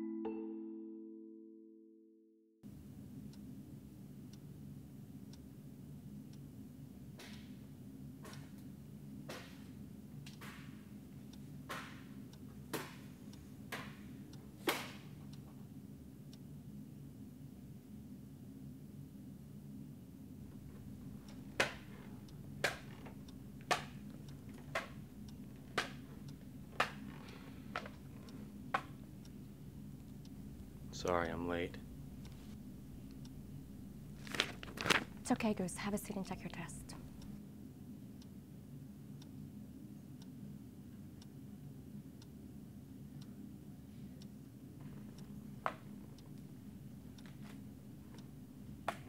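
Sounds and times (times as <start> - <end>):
low room hum: 2.6 - 49.0
clock ticking: 20.3 - 37.4.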